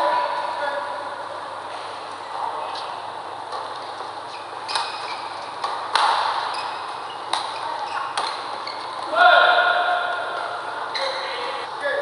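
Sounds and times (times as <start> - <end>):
shoes squeaking on court: 3.7 - 9.1, 10.9 - 11.6
rackets hitting shuttlecock: 4.7 - 9.1.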